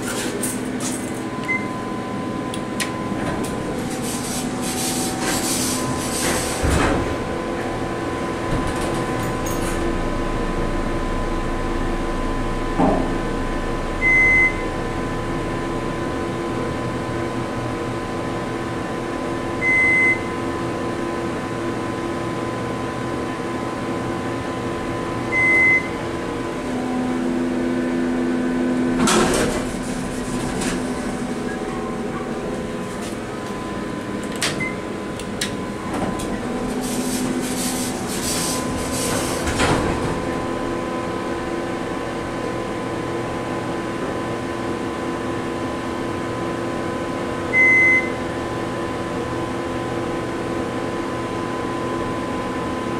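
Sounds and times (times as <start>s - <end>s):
elevator fan hum: 0.0s - 52.9s
elevator doors whooshing rattle: 8.3s - 13.6s, 29.0s - 33.1s, 34.2s - 40.6s
short electronic beep: 14.0s - 14.7s.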